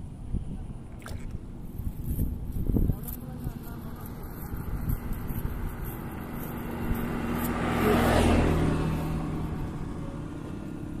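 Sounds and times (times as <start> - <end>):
vehicle passing by: 3.3 - 11.0.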